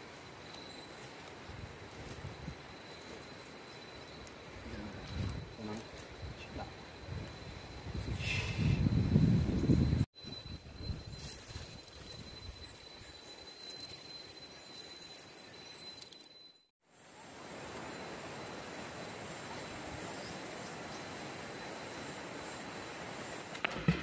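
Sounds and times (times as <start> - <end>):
thin high tone: 0.0 - 16.7.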